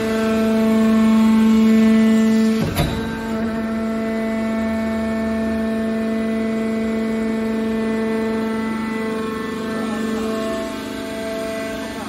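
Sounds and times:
hydraulic motor and pump hum: 0:00.0 - 0:12.0.

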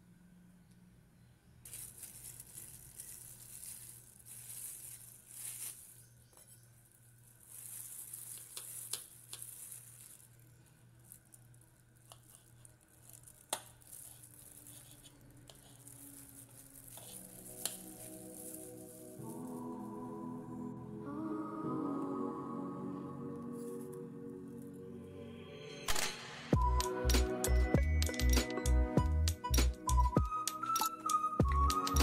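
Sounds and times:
plastic glove crinkling: 0:01.6 - 0:20.0.

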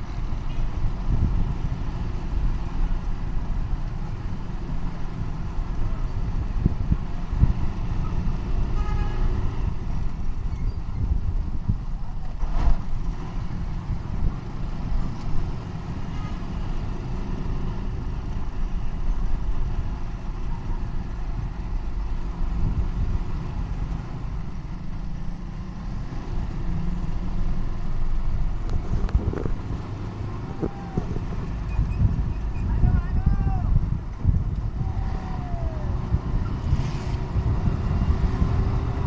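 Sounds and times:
motorcycle engine and road rumble: 0:00.0 - 0:39.0.

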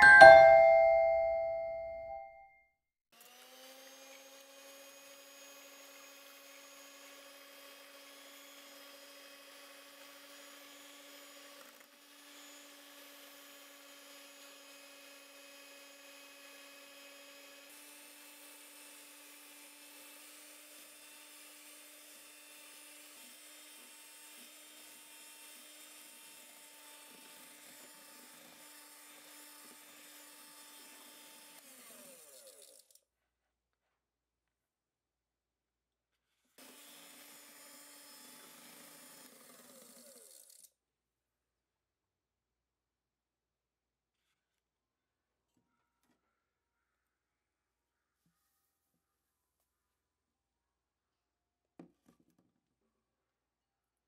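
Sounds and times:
electric hand mixer whirring: 0:03.2 - 0:32.6, 0:36.6 - 0:40.6.

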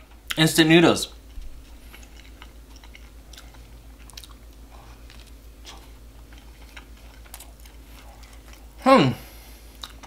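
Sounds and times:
person chewing with wet smacks: 0:01.1 - 0:08.8, 0:09.6 - 0:10.0.

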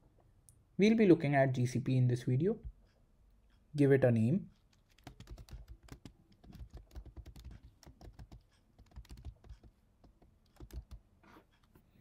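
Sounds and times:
faint keyboard typing: 0:04.4 - 0:12.0.

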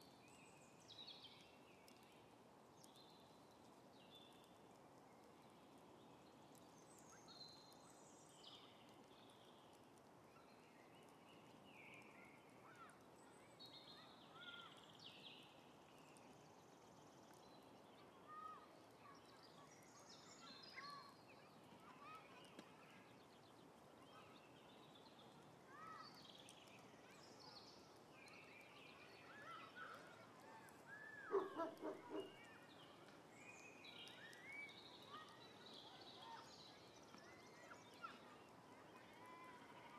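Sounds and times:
soft steady hiss: 0:00.0 - 0:39.9
birds chirping and warbling: 0:23.2 - 0:39.0
loud low bird calls: 0:31.0 - 0:32.6.

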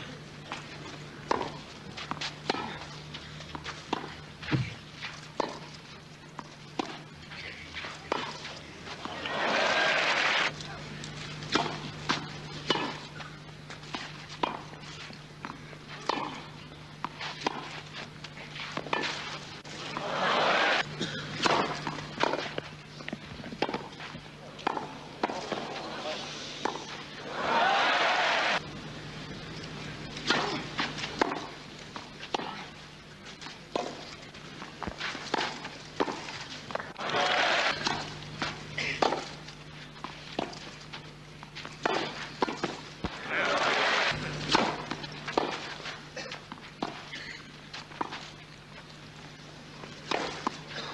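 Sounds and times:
steady low hum: 0:00.0 - 0:50.9
tennis ball bouncing: 0:00.5 - 0:02.9, 0:03.5 - 0:07.0, 0:07.8 - 0:09.7, 0:11.5 - 0:17.8, 0:18.6 - 0:26.0, 0:26.6 - 0:28.1, 0:30.2 - 0:32.7, 0:33.4 - 0:48.3, 0:50.0 - 0:50.7
racket striking ball: 0:01.2 - 0:02.8, 0:05.4 - 0:05.7, 0:11.5 - 0:13.1, 0:13.9 - 0:14.8, 0:15.9 - 0:17.8, 0:18.7 - 0:22.7, 0:23.5 - 0:24.0, 0:24.6 - 0:26.0, 0:26.6 - 0:28.1, 0:30.2 - 0:31.6, 0:32.2 - 0:32.6, 0:33.7 - 0:34.1, 0:34.8 - 0:39.4, 0:41.6 - 0:46.0, 0:50.0 - 0:50.6
crowd noise: 0:07.6 - 0:11.4, 0:19.6 - 0:21.4, 0:25.3 - 0:28.6, 0:36.8 - 0:38.8, 0:43.0 - 0:45.0.

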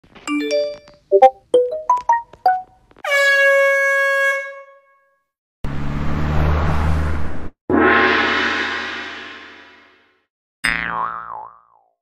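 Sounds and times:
road noise: 0:05.6 - 0:07.6.

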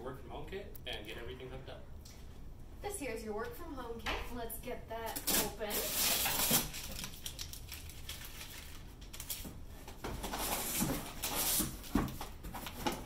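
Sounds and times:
cardboard flaps scraping and rustling: 0:09.3 - 0:13.0.

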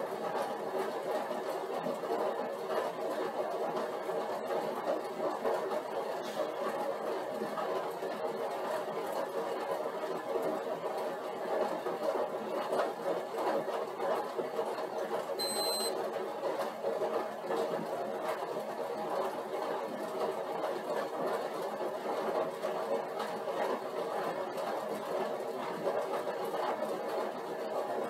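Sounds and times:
exercise bike whirring: 0:00.0 - 0:28.0
high electronic beep: 0:15.4 - 0:15.9.

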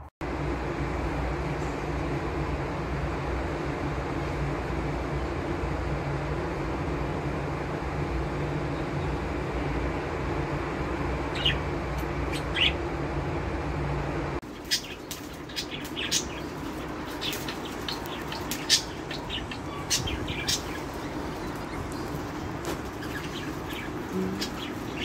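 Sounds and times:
steady low hum: 0:00.0 - 0:25.0
budgerigars chirping: 0:14.5 - 0:25.0.

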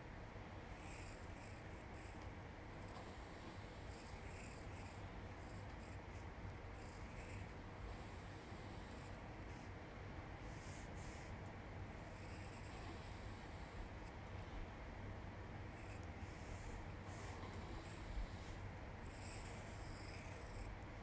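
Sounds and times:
pencil scratching on paper: 0:12.0 - 0:14.2, 0:15.7 - 0:20.8.

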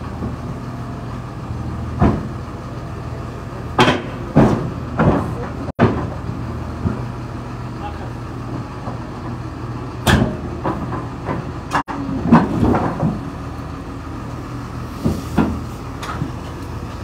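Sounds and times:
diesel engine running: 0:00.0 - 0:17.0
steel tracks clanking on deck: 0:03.7 - 0:07.1, 0:10.0 - 0:13.4, 0:14.9 - 0:17.0.

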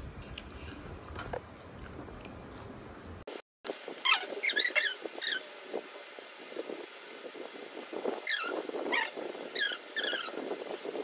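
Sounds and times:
high-pitched squeaky cries: 0:04.0 - 0:05.4.

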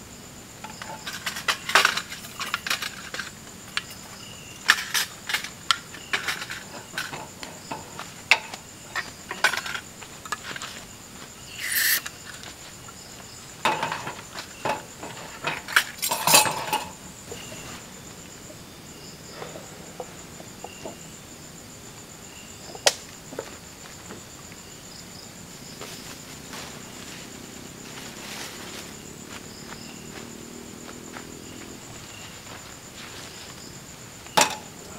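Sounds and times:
metallic clatter of camping stove: 0:00.6 - 0:10.4, 0:11.6 - 0:12.5, 0:13.6 - 0:17.0, 0:34.4 - 0:34.7
insects shrilling: 0:00.7 - 0:34.9
gas hiss: 0:11.5 - 0:12.1.

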